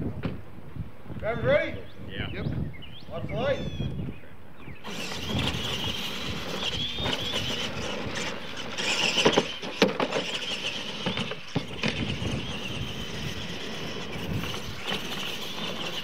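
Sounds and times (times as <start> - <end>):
rc truck motor whine: 4.7 - 16.0.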